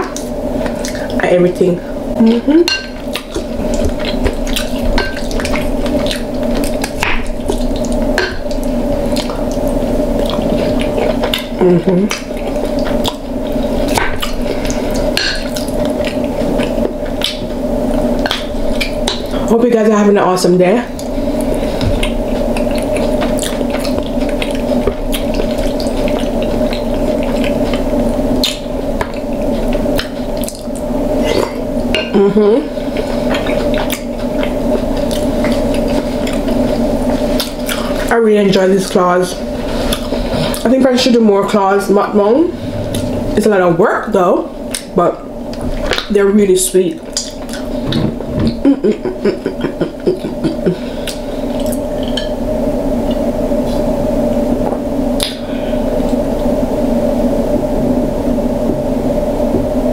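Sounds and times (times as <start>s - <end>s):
low background hum: 0.0s - 59.9s
wet chewing and smacking: 2.9s - 19.4s, 20.9s - 32.1s, 32.9s - 38.1s, 39.6s - 40.7s, 47.0s - 48.6s, 49.9s - 52.4s.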